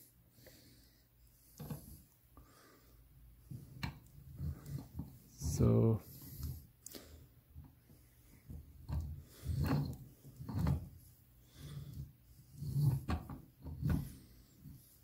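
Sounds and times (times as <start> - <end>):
filter ring rubbing and bumping: 7.6 - 15.0.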